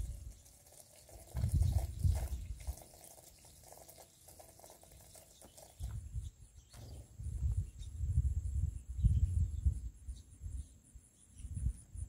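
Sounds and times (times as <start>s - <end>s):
sparrows splashing in water: 0.0s - 7.9s
wind gusts on microphone: 1.3s - 2.8s, 5.8s - 10.7s.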